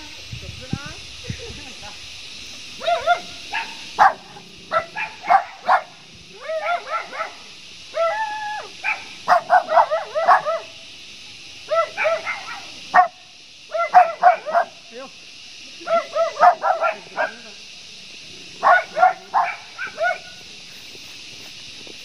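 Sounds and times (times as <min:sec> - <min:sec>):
dog barking: 0:02.8 - 0:06.0, 0:06.6 - 0:07.4, 0:08.8 - 0:10.7, 0:11.7 - 0:14.8, 0:15.8 - 0:17.4, 0:18.6 - 0:20.4.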